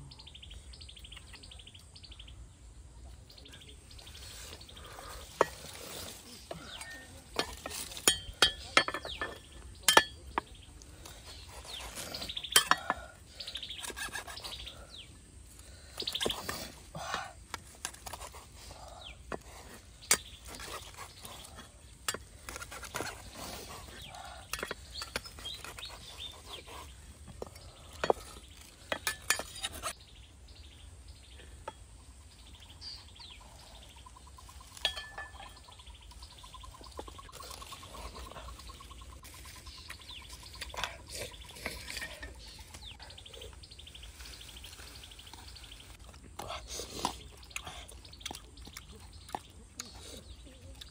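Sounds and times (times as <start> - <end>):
birds chirping faintly: 0.0 - 50.9
blade scraping on wood: 11.2 - 14.8.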